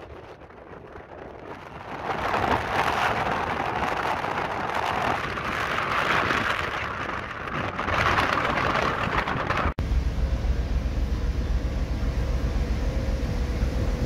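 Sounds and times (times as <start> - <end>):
wind blowing sand: 0.0 - 9.8.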